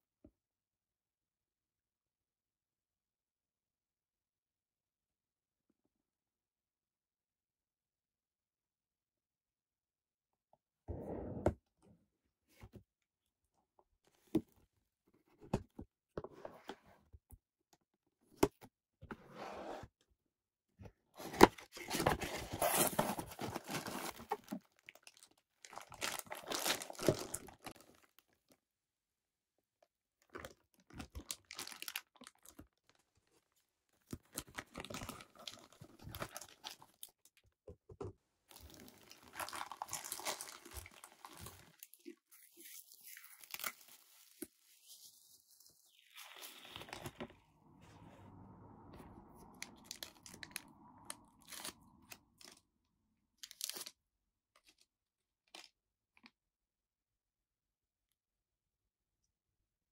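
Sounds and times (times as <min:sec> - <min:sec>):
plastic bags crinkling: 0:38.5 - 0:41.9.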